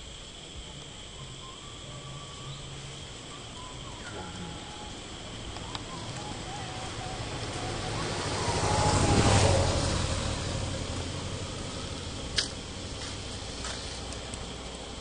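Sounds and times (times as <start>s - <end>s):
vehicle passing by: 4.2s - 15.0s.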